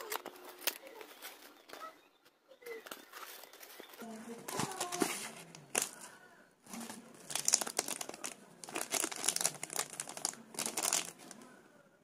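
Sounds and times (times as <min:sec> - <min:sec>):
plastic packaging crinkling: 0:04.4 - 0:06.1, 0:06.7 - 0:11.4.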